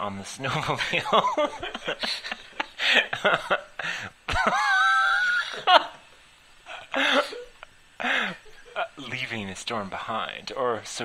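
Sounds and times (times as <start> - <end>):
person snickering: 0.8 - 6.0, 6.7 - 9.1.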